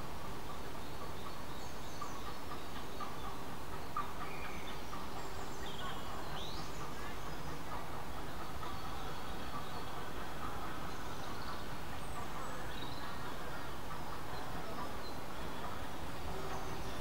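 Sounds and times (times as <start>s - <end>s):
birds singing: 0.0s - 17.0s.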